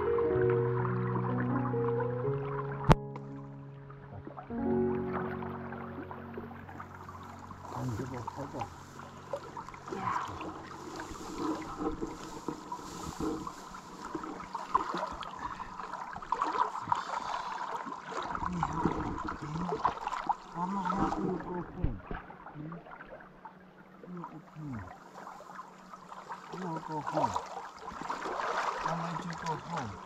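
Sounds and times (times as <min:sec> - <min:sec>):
river water splashing and gurgling: 0:00.0 - 0:30.0.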